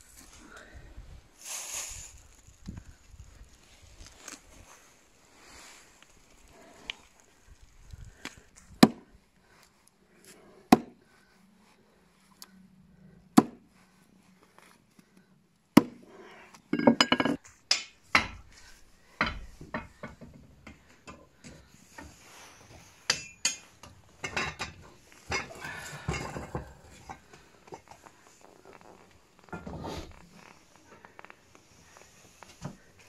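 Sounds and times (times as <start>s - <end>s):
hatchet chop on wooden board: 13.4s - 13.6s
metal pot clanking and scraping: 16.8s - 17.4s, 23.1s - 27.9s.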